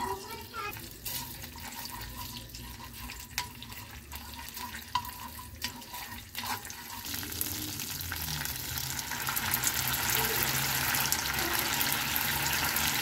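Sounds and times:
paste sizzling in hot oil: 0.0 - 13.0.

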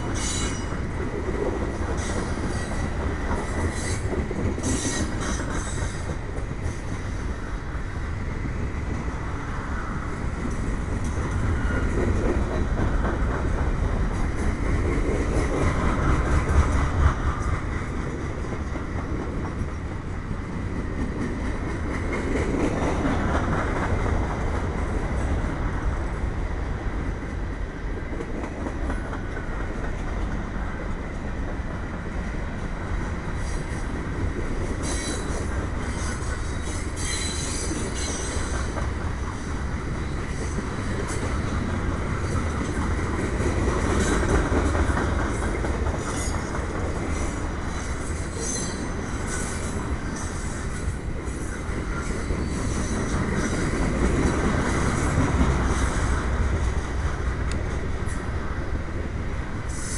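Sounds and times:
train wheels rumbling on rail: 0.0 - 59.9
high-pitched wheel squeal: 35.9 - 38.6.

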